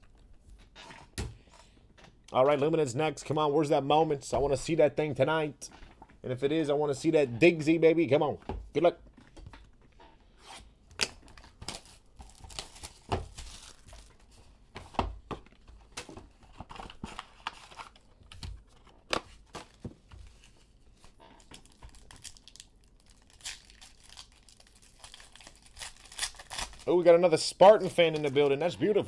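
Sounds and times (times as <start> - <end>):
plastic wrap and cardboard tearing: 11.0 - 14.4, 19.3 - 27.0.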